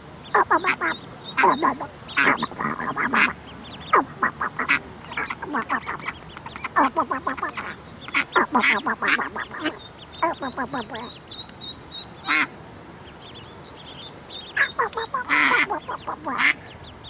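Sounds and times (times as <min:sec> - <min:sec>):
ducks quacking: 0:00.2 - 0:17.0.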